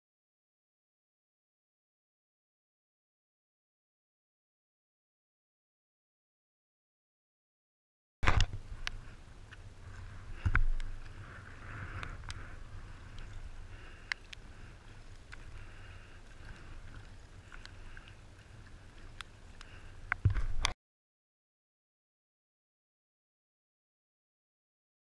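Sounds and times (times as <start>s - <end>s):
paddle strokes: 8.2s - 20.8s
water splashing and lapping: 8.3s - 20.7s.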